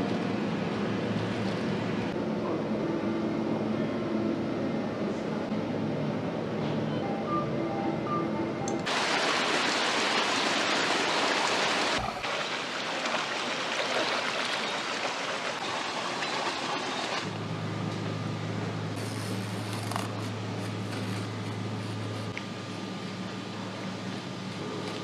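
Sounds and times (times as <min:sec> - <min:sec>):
low mechanical hum: 0:00.0 - 0:10.7, 0:14.3 - 0:25.0
rushing stream water: 0:08.9 - 0:17.3.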